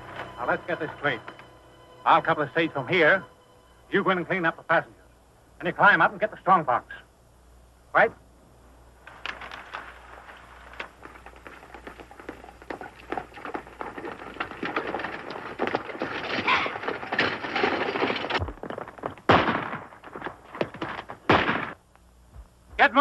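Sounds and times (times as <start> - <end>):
stagecoach rattling on dirt road: 0.0 - 3.2, 9.3 - 21.2
horse hoofbeats: 10.4 - 21.5
loud gunshot: 19.3 - 19.9, 21.3 - 21.8.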